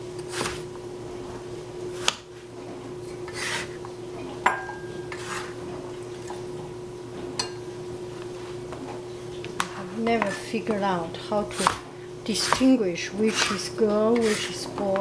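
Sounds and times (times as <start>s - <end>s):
steady low hum: 0.0s - 15.0s
clink on ceramic bowl: 4.4s - 5.1s.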